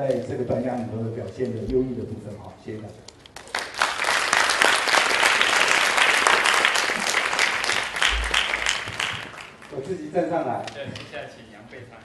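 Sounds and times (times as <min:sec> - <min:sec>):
audience applauding: 0:03.4 - 0:09.8.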